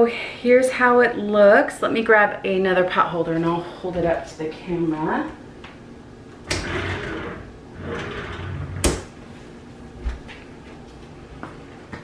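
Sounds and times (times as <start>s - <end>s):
drawer sliding and rustling: 6.5s - 9.0s.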